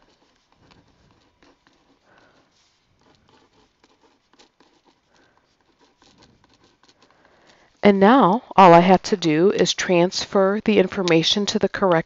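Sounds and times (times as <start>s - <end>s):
pen scratching on paper: 0.0s - 7.8s.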